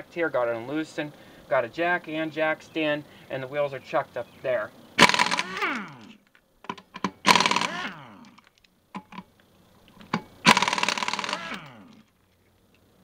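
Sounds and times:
air impact wrench rattling: 0:05.0 - 0:09.3, 0:09.9 - 0:12.2.

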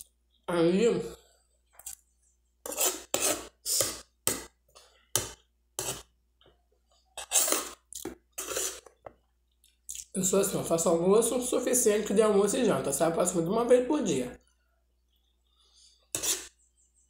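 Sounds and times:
metal spoon scraping a plate: 0:02.6 - 0:04.0, 0:07.1 - 0:09.0, 0:16.0 - 0:16.7.

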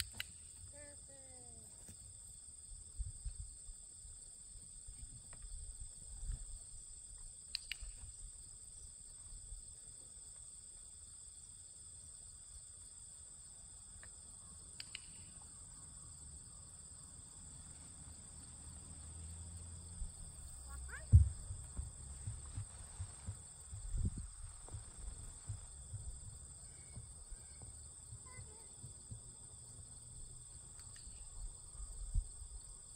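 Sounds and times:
sharp clicks: 0:00.0 - 0:00.5, 0:07.5 - 0:08.0, 0:14.8 - 0:15.4
crickets and insects chirring: 0:00.0 - 0:32.9.

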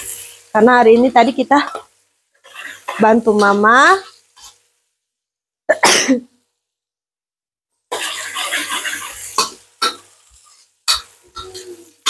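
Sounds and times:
spices sizzling in hot oil: 0:00.0 - 0:05.4, 0:07.8 - 0:12.0
person coughing: 0:05.7 - 0:06.3.

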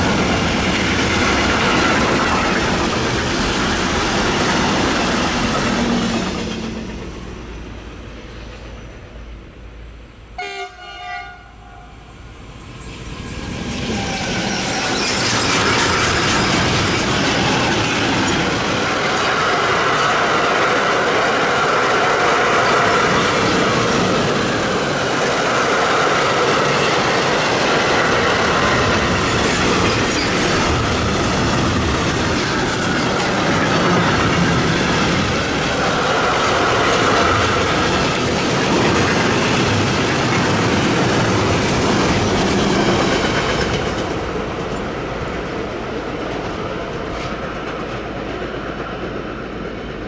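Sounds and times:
train wheels rolling on rails: 0:00.0 - 0:10.3, 0:12.0 - 0:50.0.

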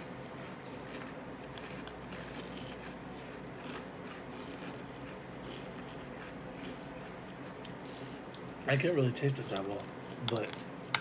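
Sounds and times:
steady low hum: 0:00.0 - 0:11.0
chewing cereal: 0:00.1 - 0:08.5.

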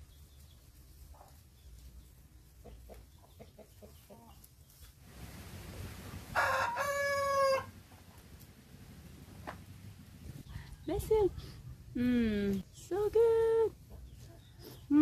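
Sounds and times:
rooster crowing: 0:06.3 - 0:07.8.

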